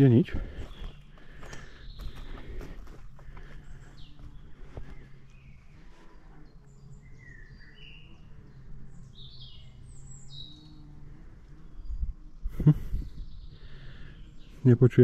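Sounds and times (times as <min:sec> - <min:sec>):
birds singing: 0:00.0 - 0:15.0
wind buffeting microphone: 0:11.8 - 0:13.5.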